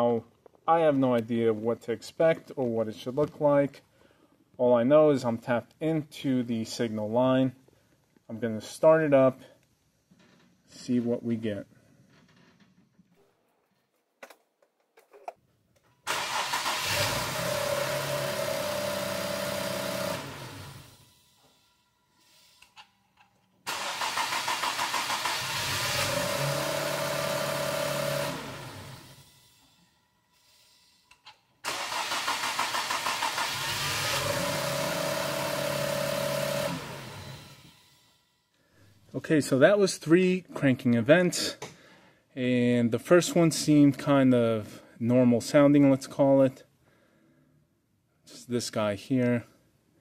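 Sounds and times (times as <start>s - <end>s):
car engine cranking with whine: 16.1s - 21.0s, 23.7s - 29.2s, 31.7s - 37.8s.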